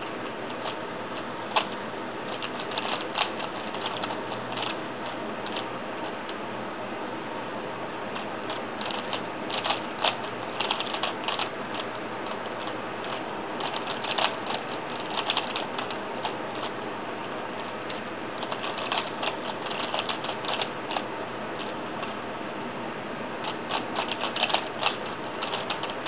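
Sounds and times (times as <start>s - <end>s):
puzzle cube clicking as turned: 8.8s - 11.5s, 13.1s - 16.7s, 18.4s - 20.7s, 23.7s - 26.0s.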